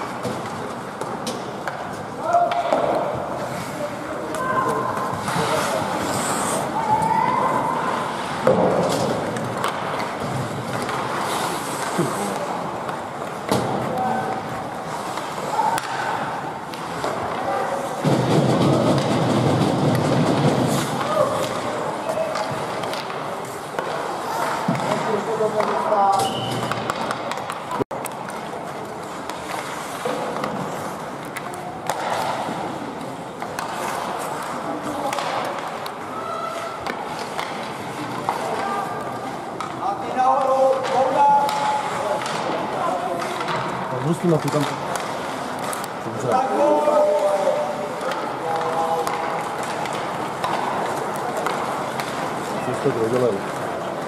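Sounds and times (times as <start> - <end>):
skates scraping on ice: 0.0 - 54.0
steady background noise: 0.0 - 54.0
hockey stick hitting puck: 8.2 - 14.1, 15.0 - 32.8, 33.4 - 38.7, 39.6 - 53.7.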